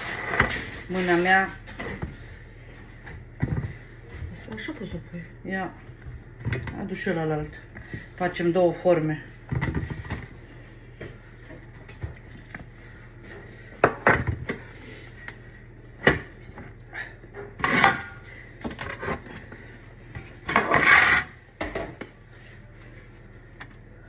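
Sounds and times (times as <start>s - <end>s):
spatula scraping glass bowl: 20.5s - 21.4s.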